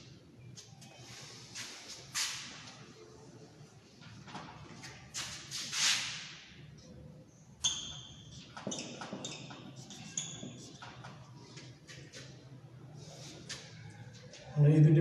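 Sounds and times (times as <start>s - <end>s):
marker squeaking on whiteboard: 0.6s - 2.8s, 4.8s - 6.4s, 7.6s - 12.6s.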